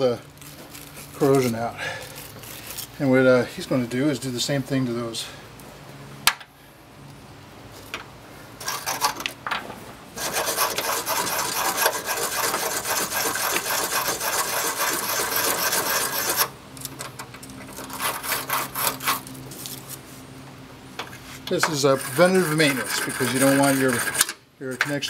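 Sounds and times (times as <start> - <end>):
wire brush scrubbing metal: 8.6 - 9.3, 10.2 - 20.0, 21.0 - 25.0.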